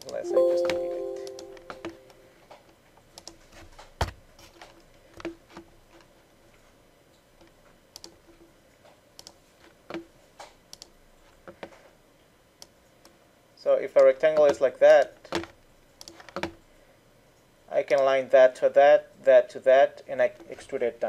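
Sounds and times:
computer mouse clicks: 0:10.7 - 0:10.9.

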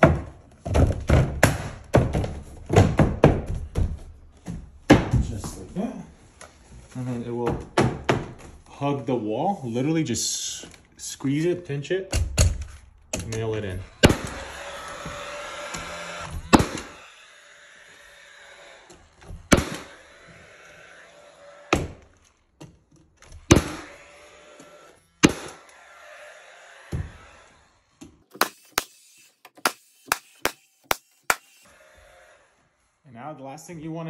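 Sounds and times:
nail gun firing: 0:12.2 - 0:17.5, 0:18.3 - 0:20.5, 0:23.4 - 0:25.9, 0:28.3 - 0:31.7.

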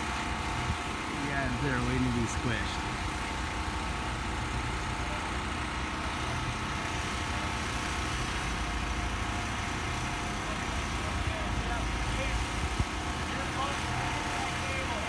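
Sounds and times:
engine running steadily: 0:00.0 - 0:15.0.

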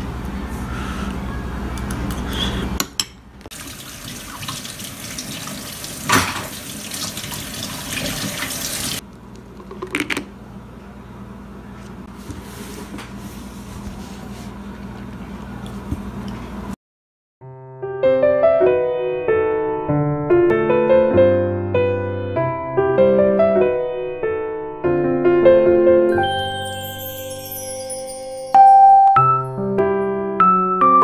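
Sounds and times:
running water rushing: 0:03.5 - 0:09.0.

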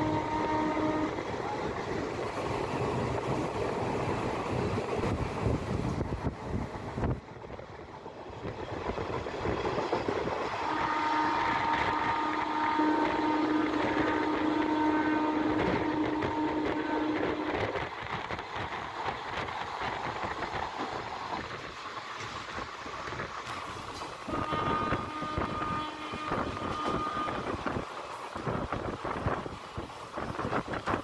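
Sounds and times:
long steady train horn: 0:00.0 - 0:03.6, 0:10.3 - 0:18.7, 0:23.0 - 0:29.6
train rolling noise and rushing air: 0:00.0 - 0:31.0.

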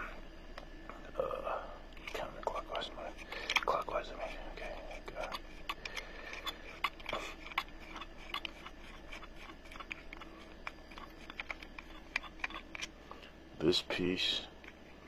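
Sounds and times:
small clicks and light scraping: 0:01.9 - 0:13.4, 0:14.6 - 0:15.0.

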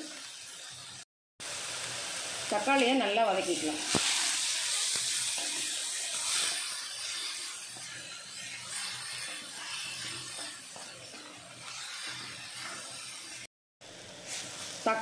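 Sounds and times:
tomatoes sizzling in hot oil: 0:00.0 - 0:15.0
wooden spatula scraping: 0:05.3 - 0:13.5.

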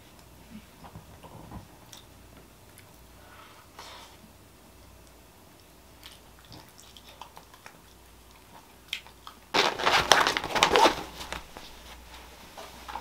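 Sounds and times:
canvas bag rustling: 0:09.6 - 0:12.0.

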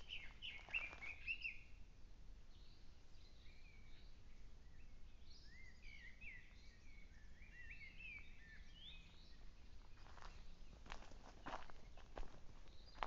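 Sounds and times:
footsteps through dry undergrowth: 0:00.0 - 0:01.4, 0:09.2 - 0:13.0
small birds chirping: 0:00.0 - 0:01.8, 0:02.5 - 0:13.0.

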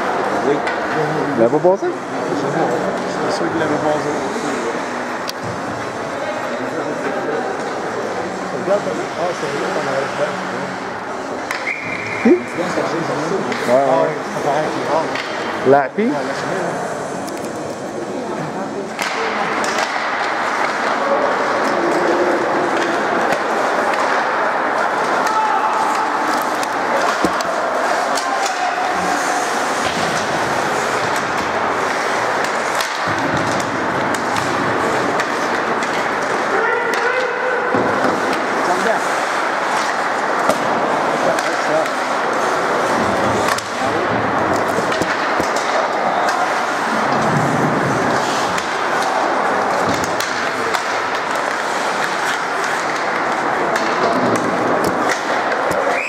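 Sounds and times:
hockey sticks and puck clacking: 0:00.0 - 0:56.0
spectators' voices: 0:00.0 - 0:56.0
skate blades scraping ice: 0:19.3 - 0:56.0.

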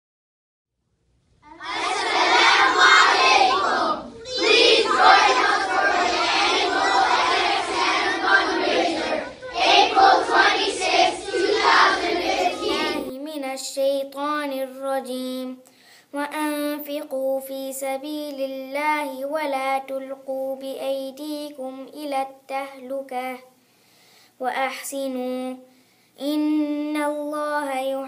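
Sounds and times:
children calling out in unison: 0:01.4 - 0:13.1
girl chanting a recitation: 0:11.2 - 0:23.6, 0:24.4 - 0:28.0.

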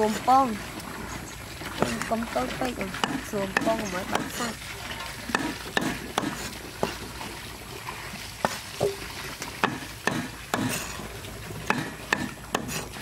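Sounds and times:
cleaver chopping on board: 0:09.6 - 0:10.8, 0:11.7 - 0:12.8.

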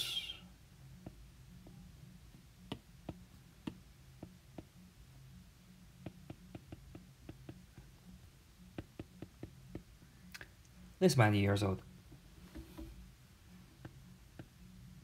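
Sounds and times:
faint low hum: 0:00.0 - 0:15.0
stylus tapping on glass screen: 0:06.0 - 0:07.9, 0:08.7 - 0:09.9.

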